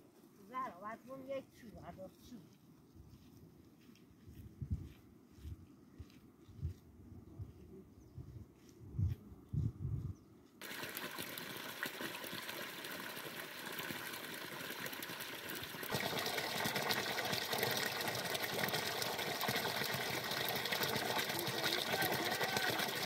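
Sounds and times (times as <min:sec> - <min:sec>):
water pouring onto rocks: 0:10.6 - 0:23.0.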